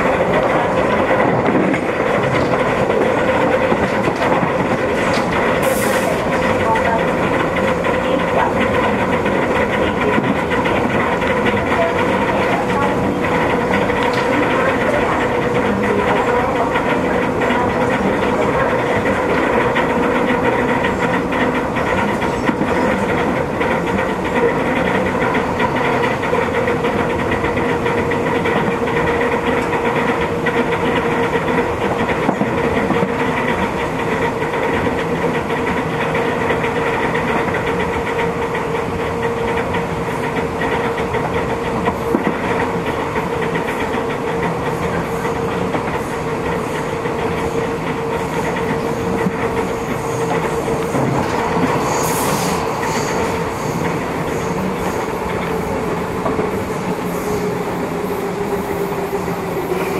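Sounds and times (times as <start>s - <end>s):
electric train whine: 0.0s - 59.9s
wheels rumbling on rail: 0.0s - 59.9s.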